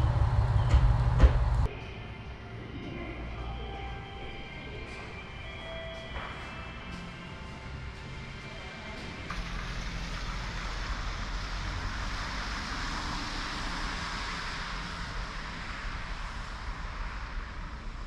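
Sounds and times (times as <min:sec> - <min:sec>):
distant traffic hiss: 0:09.3 - 0:18.0.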